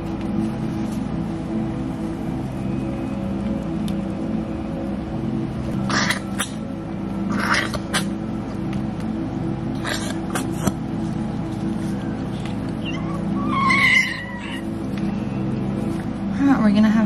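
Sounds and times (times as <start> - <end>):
steady low hum: 0.0 - 17.0
puppy squealing cry: 12.8 - 14.7.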